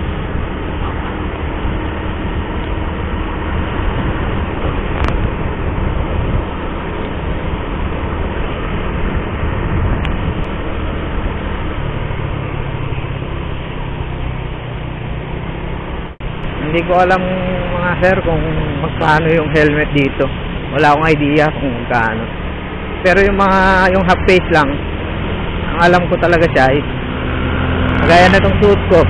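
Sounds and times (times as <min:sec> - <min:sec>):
road noise: 0:00.0 - 0:29.0
scooter engine running: 0:00.0 - 0:29.0
wind rushing: 0:00.0 - 0:29.0.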